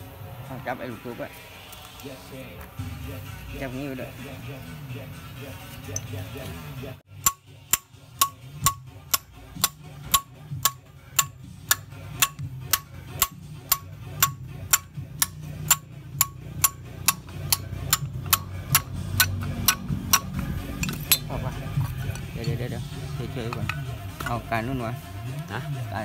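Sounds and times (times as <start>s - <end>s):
hammer tapping a steel punch: 7.2s - 21.2s.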